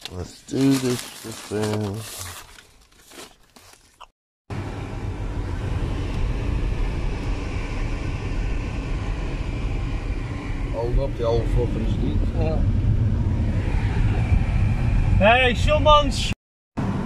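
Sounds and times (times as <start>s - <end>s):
plastic bag rustling: 0.0s - 4.1s
car engine rumble inside car: 4.5s - 16.2s
road noise: 4.5s - 17.0s.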